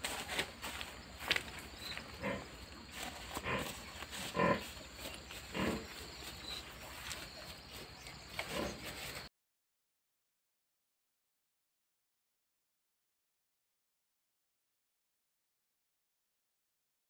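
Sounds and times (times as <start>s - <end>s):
farm animals calling: 0.1s - 9.2s.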